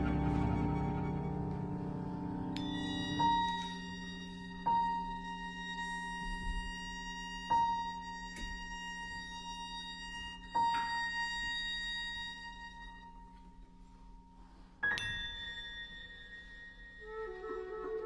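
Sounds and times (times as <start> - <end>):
high ringing note: 0.0 - 6.1, 14.8 - 18.0
soft held string tones: 0.0 - 6.6.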